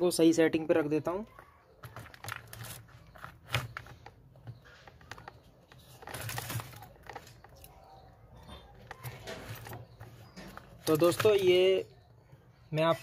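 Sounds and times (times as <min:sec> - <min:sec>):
handling rustle: 0:01.3 - 0:08.0.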